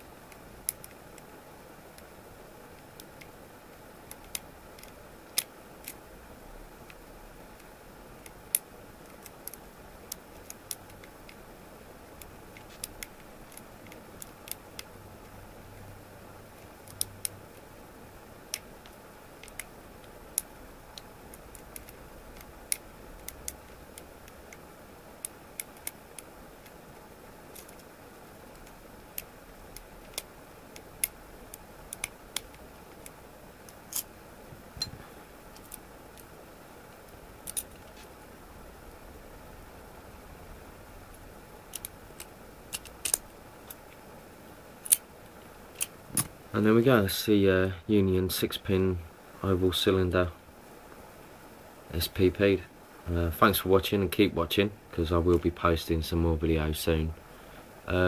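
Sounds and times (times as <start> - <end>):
faint steady hiss: 0.0 - 58.0
lock pick metallic clicks: 37.4 - 37.8, 41.7 - 43.8, 44.8 - 45.0.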